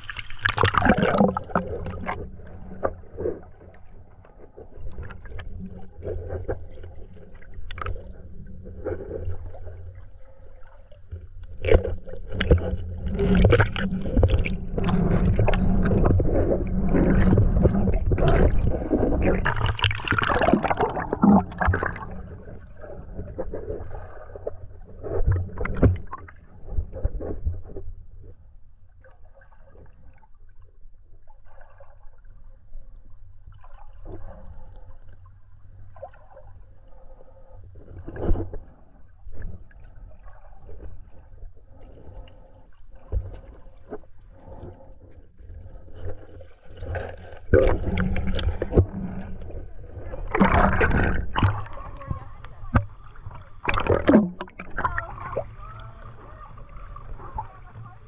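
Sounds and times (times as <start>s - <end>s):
underwater knocks and clicks: 0.0s - 9.8s, 11.1s - 28.0s, 46.8s - 55.9s
muffled underwater churning water: 0.0s - 58.0s.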